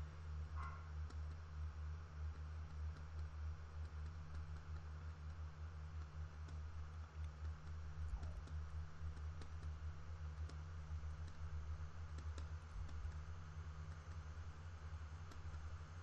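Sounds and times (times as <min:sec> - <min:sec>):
low electrical hum: 0:00.0 - 0:16.0.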